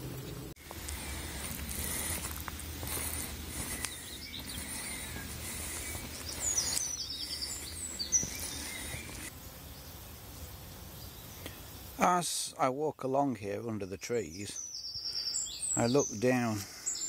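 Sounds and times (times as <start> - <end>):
small bird chirping: 0.2 - 9.9, 13.8 - 17.0
footsteps on gravel path: 0.6 - 9.3.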